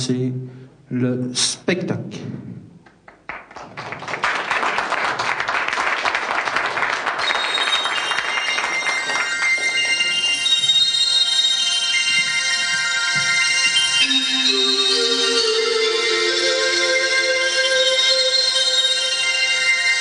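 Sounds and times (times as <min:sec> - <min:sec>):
audience applauding: 0:02.9 - 0:10.9
short instrumental tune: 0:12.8 - 0:19.8.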